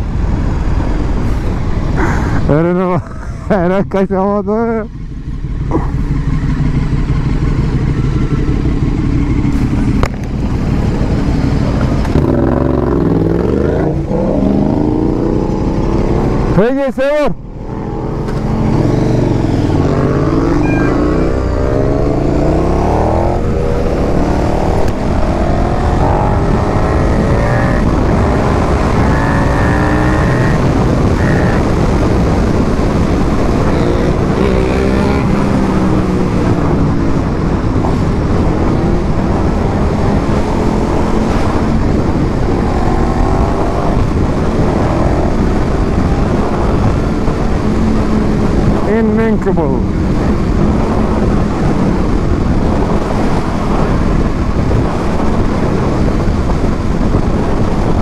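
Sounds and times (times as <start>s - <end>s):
motorcycle engine accelerating: 0.0s - 16.6s, 17.4s - 58.0s
wind and road noise: 0.0s - 58.0s.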